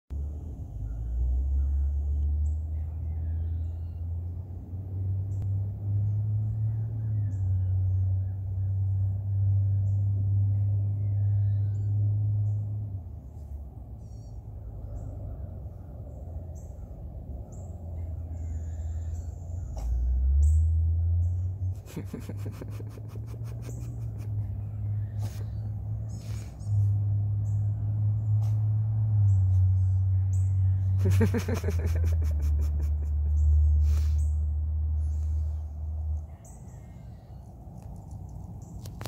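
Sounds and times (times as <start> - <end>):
small birds chirping and trilling: 0.1 - 4.3, 5.2 - 39.0
low outdoor rumble: 0.1 - 39.0.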